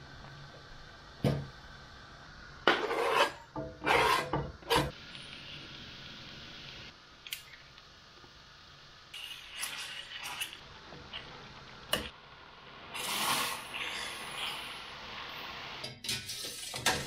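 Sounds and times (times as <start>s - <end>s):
garlic frying in oil: 3.8s - 17.0s
boiling water hiss: 4.1s - 17.0s.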